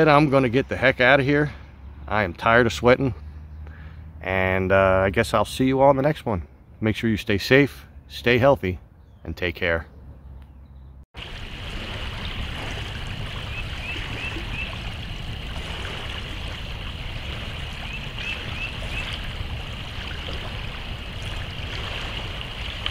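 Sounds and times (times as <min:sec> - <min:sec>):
bird chirping: 0:08.9 - 0:11.0, 0:13.5 - 0:14.9, 0:17.7 - 0:19.2
creek water running: 0:11.2 - 0:22.9.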